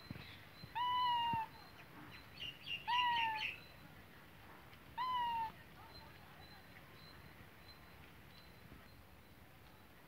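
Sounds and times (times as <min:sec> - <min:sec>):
cat meowing: 0:00.8 - 0:01.5, 0:05.0 - 0:05.5.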